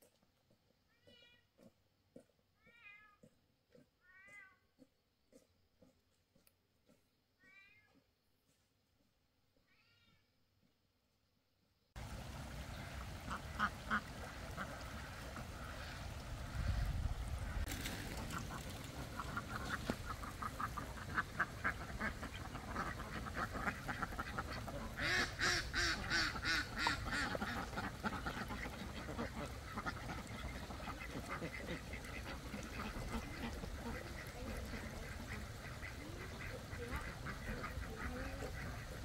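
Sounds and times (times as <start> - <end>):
fowl quacking calls: 12.7 - 39.0.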